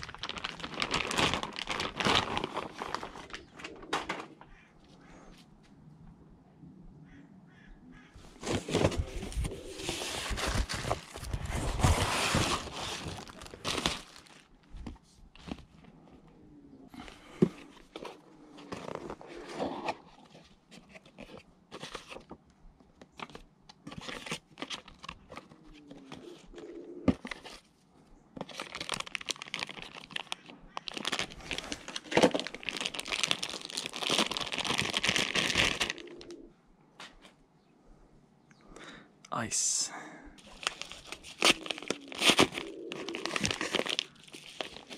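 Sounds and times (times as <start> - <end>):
packing crinkling and rustling: 0.0 - 4.3, 8.3 - 16.0, 17.0 - 22.4, 23.0 - 27.7, 28.4 - 36.4, 40.4 - 44.9
cardboard being torn: 8.4 - 14.4, 30.9 - 36.1, 40.4 - 44.9.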